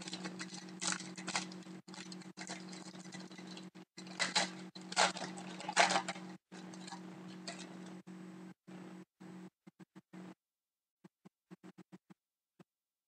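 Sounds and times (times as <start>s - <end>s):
foil wrapper crinkling and tearing: 0.0s - 7.8s
steady low hum: 0.0s - 9.5s.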